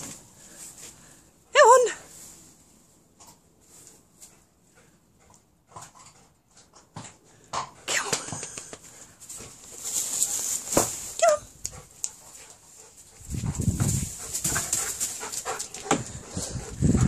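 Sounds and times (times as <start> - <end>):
straw rustling and crackling: 9.0 - 12.6
dull low thumps: 13.2 - 14.7.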